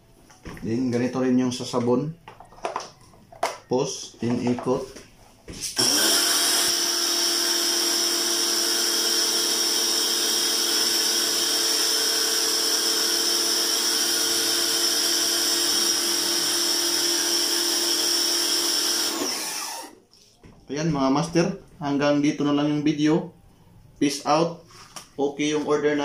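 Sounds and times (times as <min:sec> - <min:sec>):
pressure washer motor whine: 0:05.8 - 0:19.9.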